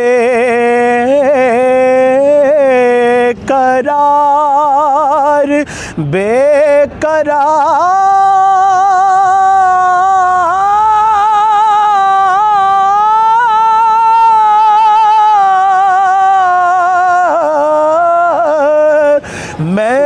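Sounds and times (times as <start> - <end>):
man singing unaccompanied: 0.0 - 20.0.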